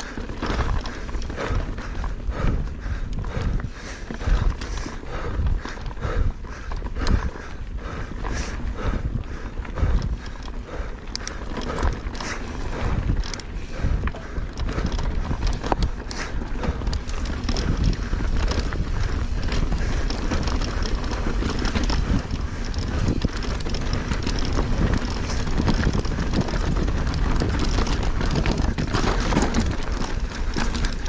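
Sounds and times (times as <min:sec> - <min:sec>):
tyres rolling over dirt and rock: 0:00.0 - 0:02.3, 0:10.0 - 0:31.0
bike rattling and knocking: 0:00.0 - 0:31.0
wind on microphone: 0:00.0 - 0:31.0.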